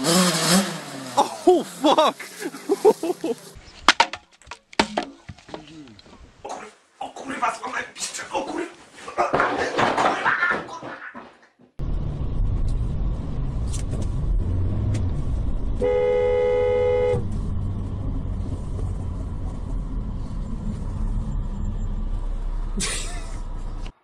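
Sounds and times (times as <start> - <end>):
low rumble of car driving: 11.8 - 24.0
car horn: 15.8 - 17.3.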